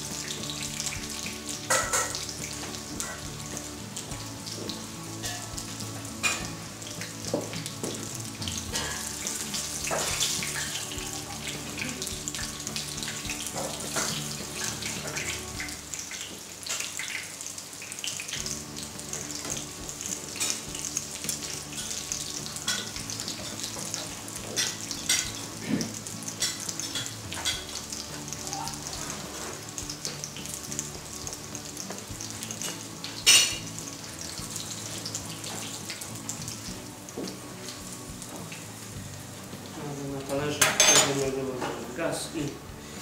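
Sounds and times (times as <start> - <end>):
oil sizzling in a frying pan: 0.0 - 43.0.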